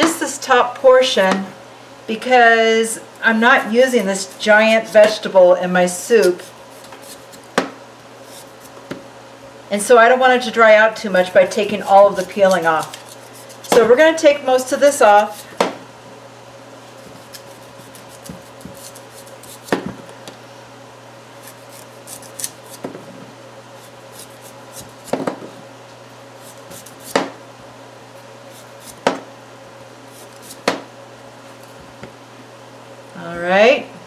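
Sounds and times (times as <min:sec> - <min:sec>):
knife cutting on cutting board: 0:06.1 - 0:07.5, 0:12.0 - 0:13.9, 0:17.0 - 0:19.9, 0:21.4 - 0:22.9, 0:23.8 - 0:25.4, 0:26.4 - 0:27.3, 0:30.1 - 0:30.8.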